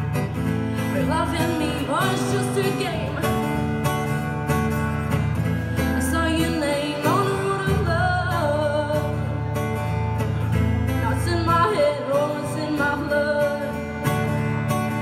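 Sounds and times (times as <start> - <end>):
acoustic guitar strumming: 0.0 - 15.0
woman singing: 0.8 - 3.9, 5.8 - 9.4, 10.9 - 14.2.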